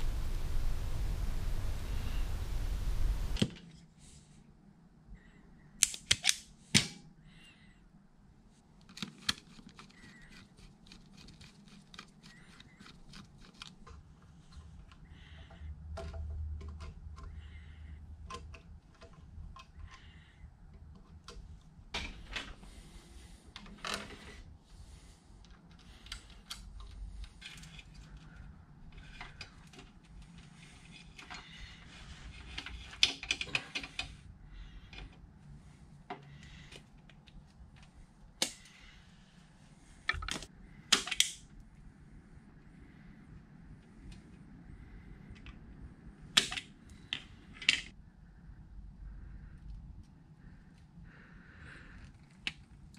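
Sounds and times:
steady rushing noise: 0.0s - 3.4s.

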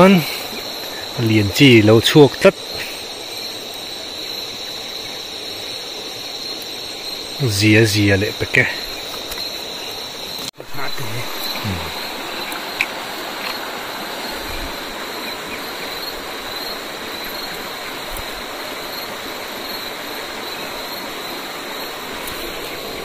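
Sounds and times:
river water flowing over rocks: 8.7s - 23.0s.

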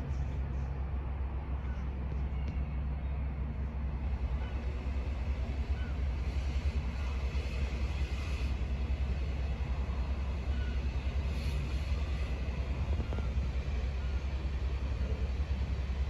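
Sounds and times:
distant jet airliner rumble: 0.0s - 16.0s
wind buffeting microphone: 8.8s - 16.0s.

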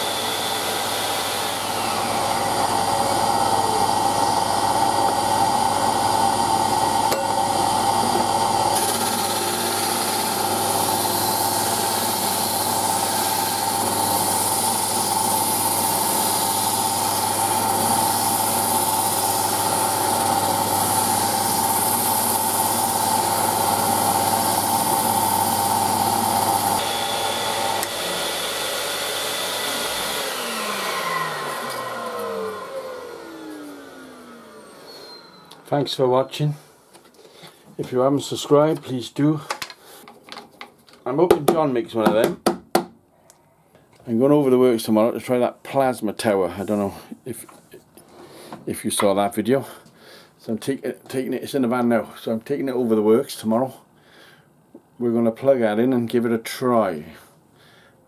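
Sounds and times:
motor winding down: 0.0s - 35.7s
drill spinning sanding drum: 0.0s - 36.6s
vacuum cleaner running: 0.0s - 36.9s
wood being sanded: 7.6s - 34.7s.

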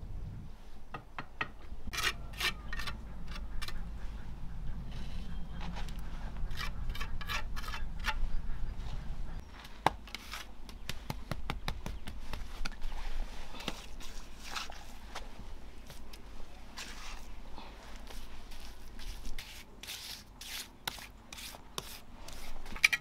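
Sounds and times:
trowel scraping mortar on bricks: 1.9s - 3.8s, 6.4s - 8.2s, 10.1s - 10.6s, 18.0s - 23.0s.

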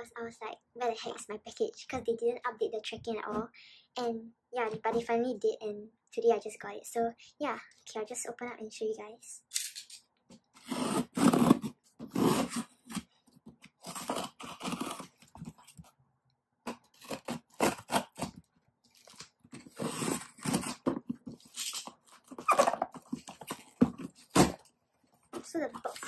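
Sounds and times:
box cutter slicing tape: 10.6s - 13.1s, 13.7s - 15.4s, 16.6s - 24.7s
cardboard scraping and crunching: 10.6s - 13.1s, 13.8s - 15.9s, 16.7s - 26.0s
tape tearing: 10.6s - 15.9s, 16.6s - 24.7s, 25.4s - 26.0s.

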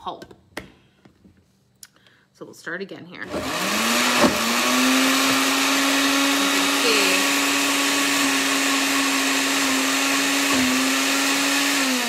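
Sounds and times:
blender motor humming: 3.2s - 12.0s.

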